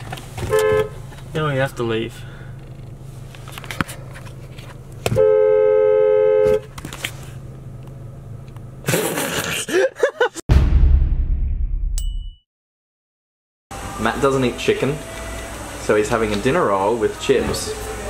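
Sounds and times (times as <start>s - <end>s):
car horn honk: 0.5s - 1.0s, 5.1s - 6.7s.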